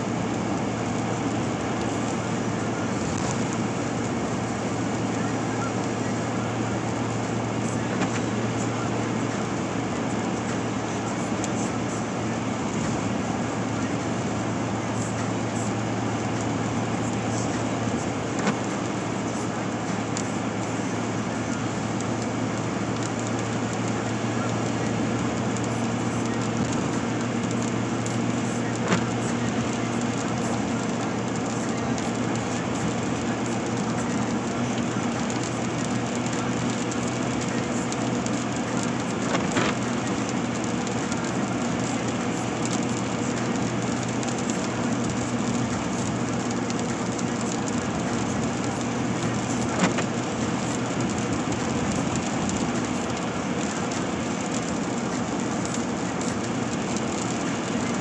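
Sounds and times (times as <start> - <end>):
car road and engine drone: 0.0 - 58.0
windshield wiper clicks: 18.4 - 18.8, 49.2 - 58.0.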